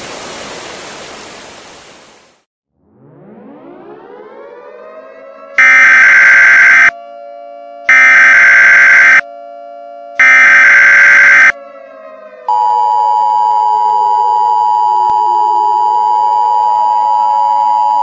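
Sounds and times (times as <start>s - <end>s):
harsh buzzy data bursts: 5.6s - 6.9s, 7.9s - 9.2s, 10.2s - 11.5s
two-tone attention signal: 5.6s - 6.9s, 7.9s - 9.2s, 10.2s - 11.5s.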